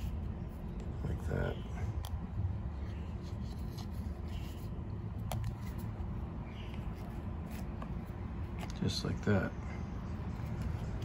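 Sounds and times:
steady low hum: 0:00.0 - 0:11.0
faint rubbing of plastic parts: 0:02.8 - 0:06.1.

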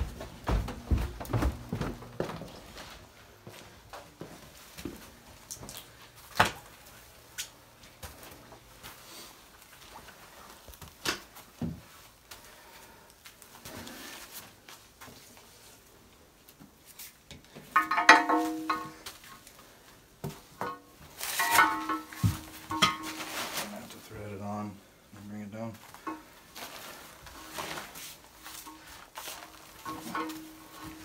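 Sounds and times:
metal frame and tools knocking: 0:17.6 - 0:19.4, 0:20.4 - 0:23.3, 0:26.0 - 0:26.3, 0:29.7 - 0:31.0.

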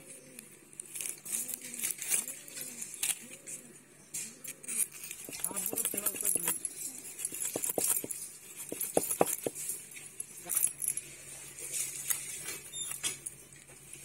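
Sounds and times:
knife scraping fish scales: 0:04.5 - 0:09.6.

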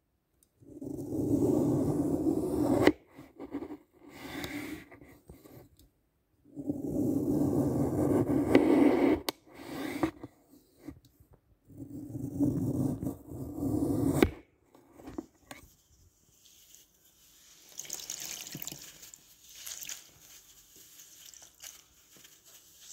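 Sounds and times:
wet foam squishing: 0:17.6 - 0:22.7.

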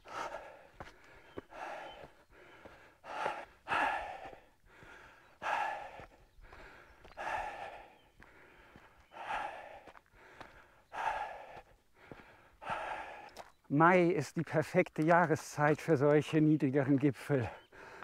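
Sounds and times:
person breathing heavily: 0:00.0 - 0:13.5, 0:17.5 - 0:18.0.

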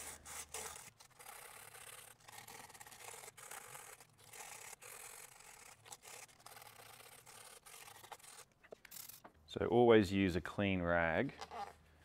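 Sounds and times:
sandpaper scratching: 0:00.0 - 0:08.5.

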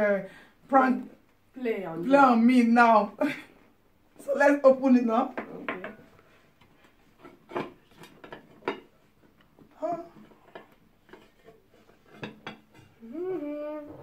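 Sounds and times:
bowls and plates clinking: 0:07.2 - 0:13.0.

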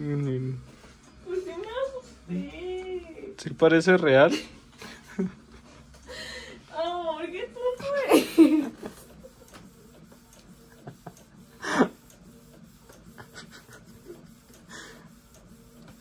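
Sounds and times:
woman crying and sobbing: 0:06.1 - 0:09.1, 0:11.5 - 0:12.0
sniffling: 0:11.5 - 0:12.0.

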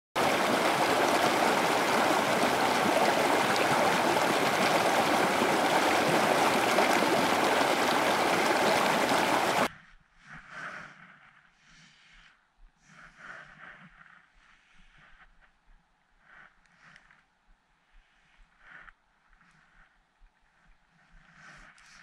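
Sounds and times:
stream water rushing: 0:00.2 - 0:09.7.

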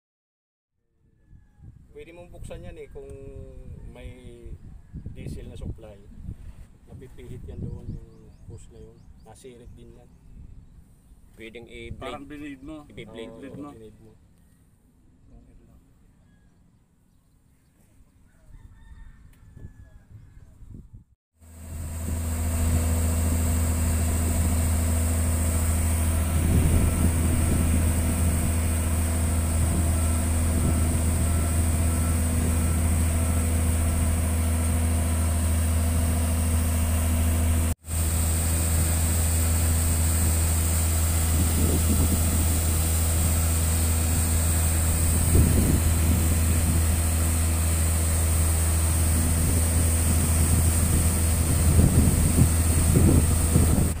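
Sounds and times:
diesel engine running steadily: 0:21.4 - 0:54.0.

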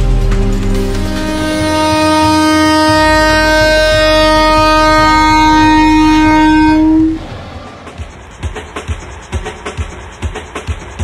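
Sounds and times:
train running rumble: 0:00.0 - 0:11.0
train air horn blast: 0:00.9 - 0:07.5.

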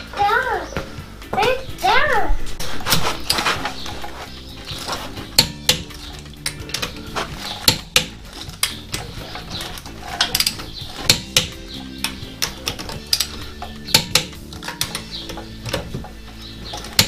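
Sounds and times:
torque wrench clicking: 0:03.2 - 0:17.0
metal socket clinking on nuts: 0:04.7 - 0:17.0.

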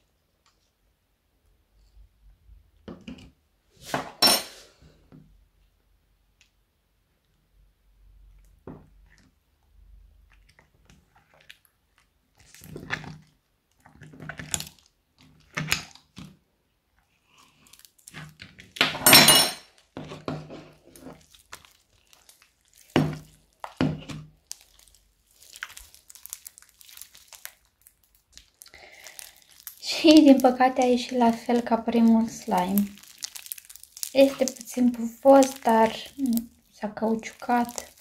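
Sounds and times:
sticky slime crackling and tearing: 0:10.3 - 0:16.4, 0:17.2 - 0:19.0, 0:20.6 - 0:38.0.

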